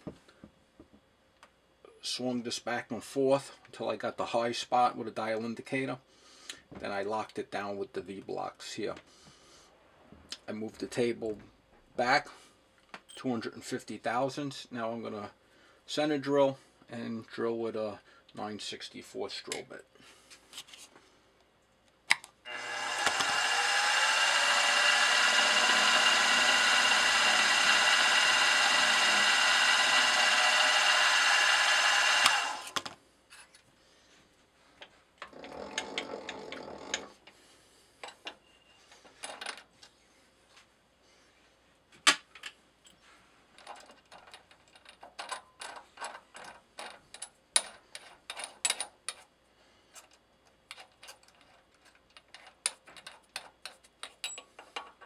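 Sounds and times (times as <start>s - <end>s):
milling machine spindle whine: 22.5s - 32.8s.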